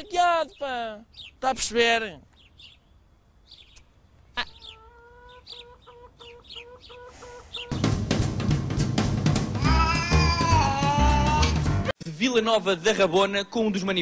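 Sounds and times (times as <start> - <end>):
faint birdsong: 0.0 - 8.2
music ident with drum kit: 7.7 - 11.9.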